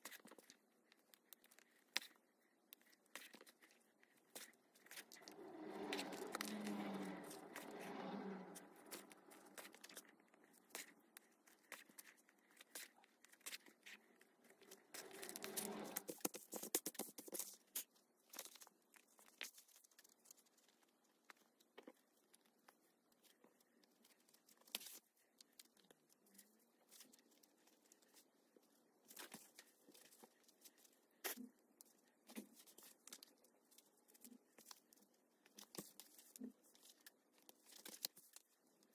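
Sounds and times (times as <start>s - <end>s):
thread drawn through hide: 4.4s - 11.0s, 14.5s - 16.5s.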